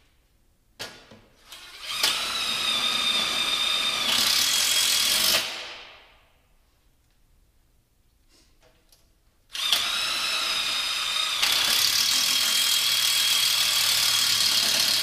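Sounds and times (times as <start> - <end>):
power drill whining: 9.5 - 15.0.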